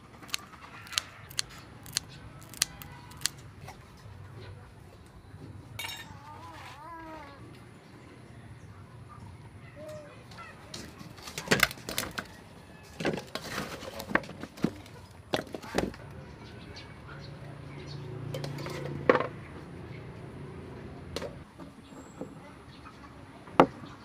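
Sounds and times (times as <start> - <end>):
dishes clinking: 5.8 - 6.2.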